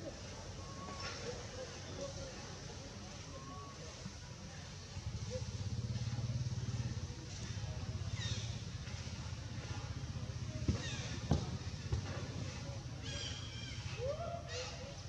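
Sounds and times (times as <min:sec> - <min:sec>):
small engine rumbling: 0:04.1 - 0:15.0.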